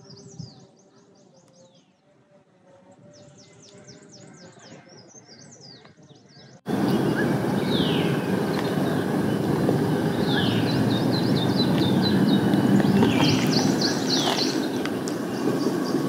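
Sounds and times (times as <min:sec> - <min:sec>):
birds chirping: 0:02.9 - 0:16.0
loud steady rushing noise: 0:06.7 - 0:16.0.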